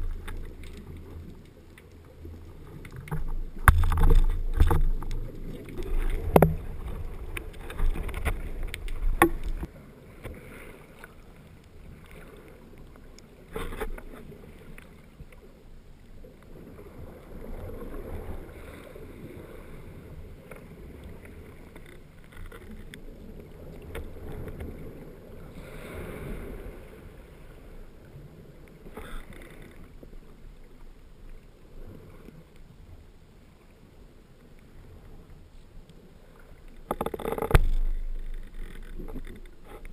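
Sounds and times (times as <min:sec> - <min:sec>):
underwater churning rumble: 0:00.0 - 0:09.7, 0:36.8 - 0:39.9
sharp clicks underwater: 0:00.0 - 0:10.4, 0:36.7 - 0:39.9
underwater surge wash: 0:00.0 - 0:14.8, 0:16.5 - 0:21.8, 0:23.1 - 0:29.6.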